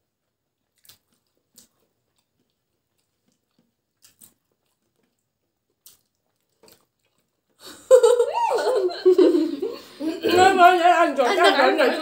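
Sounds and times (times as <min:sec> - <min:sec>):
mouth chewing smacks: 0:00.6 - 0:07.6.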